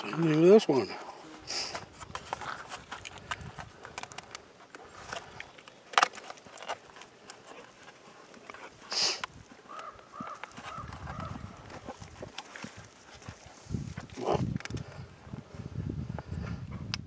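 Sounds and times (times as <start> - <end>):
rustle: 0.0 - 16.8.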